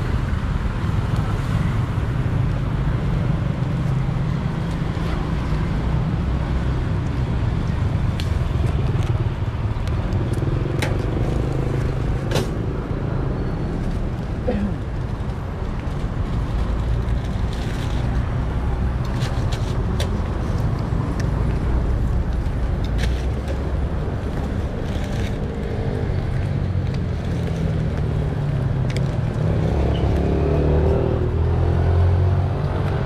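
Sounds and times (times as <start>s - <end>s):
traffic engine rumble: 0.0s - 33.0s
vehicle passing: 23.2s - 33.0s.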